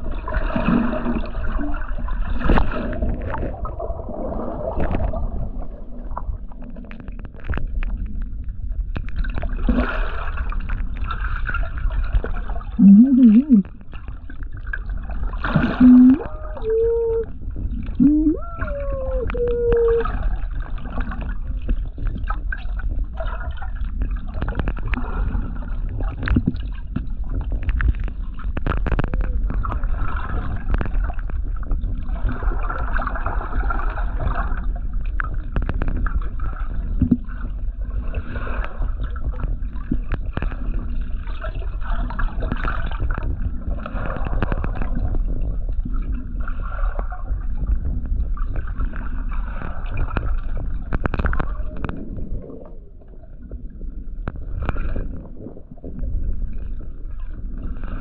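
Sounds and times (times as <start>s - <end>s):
underwater rumble of moving water: 0.0s - 58.0s
crackling clicks: 27.5s - 29.8s, 50.0s - 52.1s.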